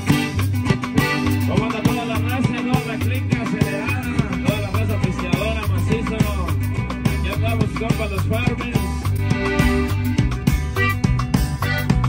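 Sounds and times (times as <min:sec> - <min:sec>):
accordion: 0:00.0 - 0:12.0
drum kit beat: 0:00.0 - 0:12.0
electric bass: 0:00.0 - 0:12.0
guitar: 0:00.0 - 0:12.0
man singing: 0:01.4 - 0:09.0.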